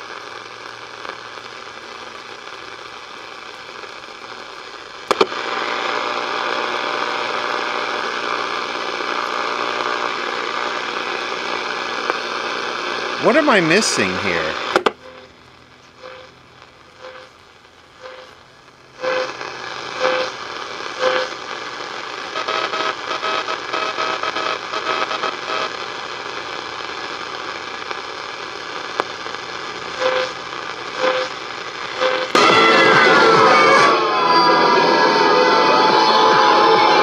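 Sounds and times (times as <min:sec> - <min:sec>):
radio static hiss: 0:00.0 - 0:37.0
radio signal falling whistle: 0:32.0 - 0:37.0.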